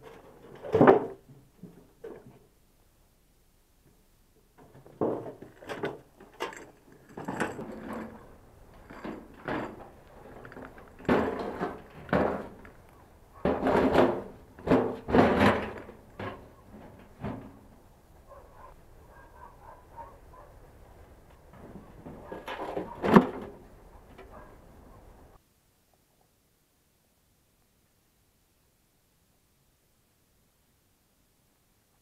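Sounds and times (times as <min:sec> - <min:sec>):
steel wheelbarrow rattling: 0:04.6 - 0:17.8, 0:21.5 - 0:24.6.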